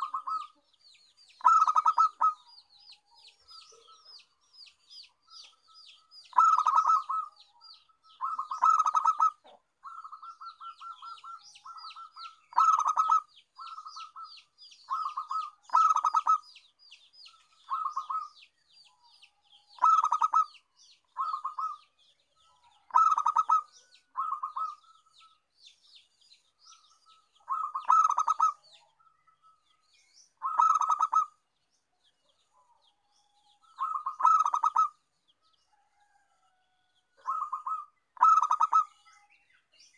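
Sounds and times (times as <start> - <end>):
dove cooing: 0.0 - 0.6, 1.4 - 2.5, 6.3 - 7.4, 8.1 - 16.4, 17.6 - 18.4, 19.8 - 20.6, 21.2 - 21.8, 22.8 - 25.4, 27.1 - 28.8, 30.4 - 31.4, 33.6 - 35.0, 37.2 - 39.0.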